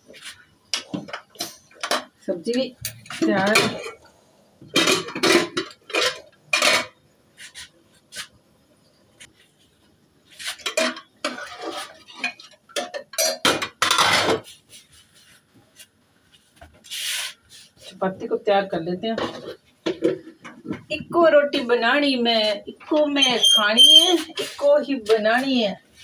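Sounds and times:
metal pots and utensils clattering: 0.8s - 2.2s, 2.8s - 7.0s, 10.5s - 14.6s, 19.2s - 21.0s.

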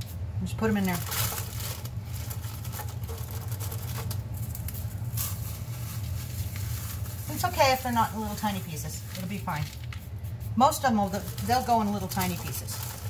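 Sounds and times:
crackers crunching by hand: 0.8s - 8.0s, 11.1s - 13.0s.

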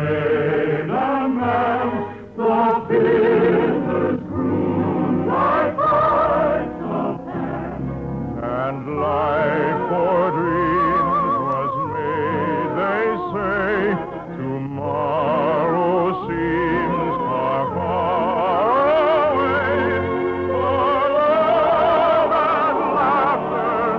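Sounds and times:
operatic singing: 0.0s - 23.9s
orchestra: 0.0s - 23.9s.

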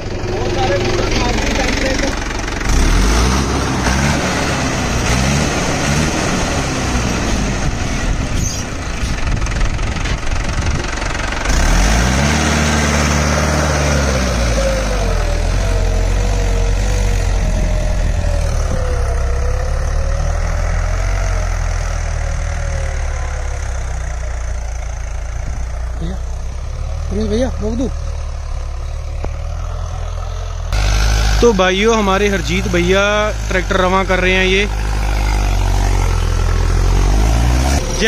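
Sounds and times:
tractor diesel engine revving: 0.0s - 38.0s.

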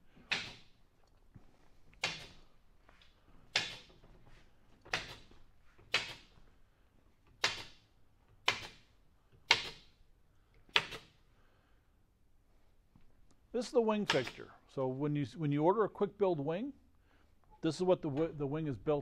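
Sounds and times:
pneumatic nail gun firing: 0.3s - 0.7s, 2.0s - 2.4s, 3.5s - 4.0s, 4.9s - 5.3s, 5.9s - 6.3s, 7.4s - 7.8s, 8.4s - 8.9s, 9.5s - 10.0s, 10.7s - 11.2s.

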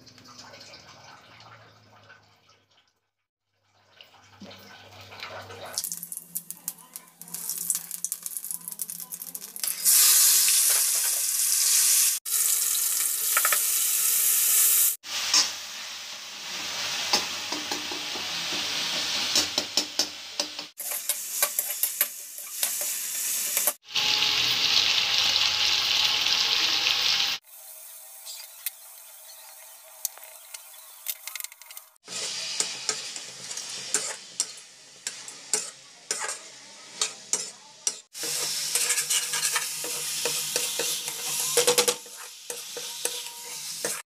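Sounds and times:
vegetables sizzling in oil: 5.8s - 44.0s
spatula scraping a wok: 31.6s - 44.0s.

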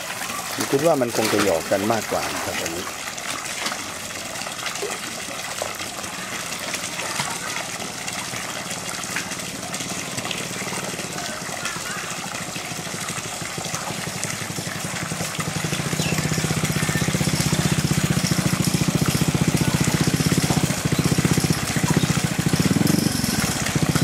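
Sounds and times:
churning water: 0.0s - 24.0s
small motor pulsing: 6.0s - 24.0s.

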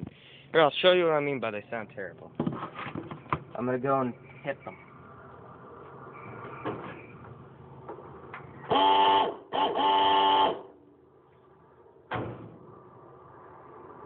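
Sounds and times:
air horn blasts: 8.7s - 10.8s.

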